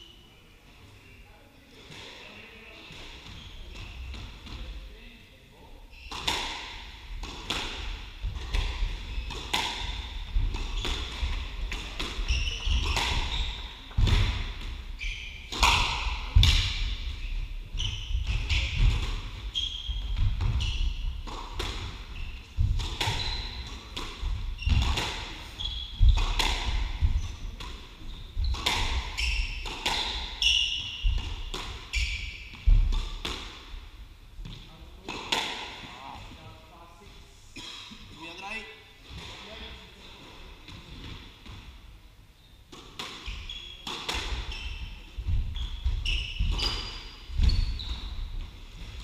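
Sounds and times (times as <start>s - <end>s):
sneakers squeaking on wooden floor: 1.9s - 4.8s, 5.8s - 33.8s, 42.4s - 49.0s.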